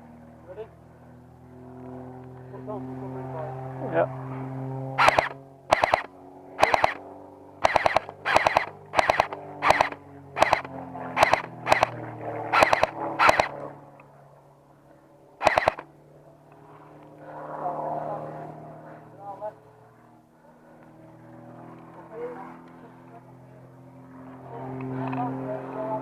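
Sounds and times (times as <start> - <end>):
airsoft rifle bursts: 5.0 - 7.0, 7.6 - 13.6, 15.4 - 15.8.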